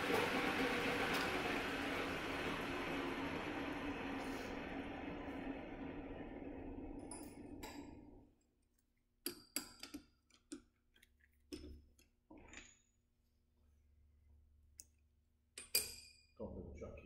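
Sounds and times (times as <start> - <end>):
metal lathe running: 0.0 - 8.0
metal part clicking and clinking: 15.5 - 16.3.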